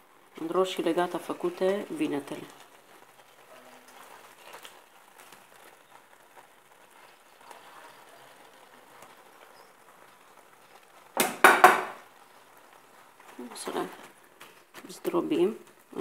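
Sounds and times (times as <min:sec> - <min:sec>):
sauce simmering in a pan: 0:00.0 - 0:16.0
wooden spatula knocking pan: 0:11.2 - 0:12.0.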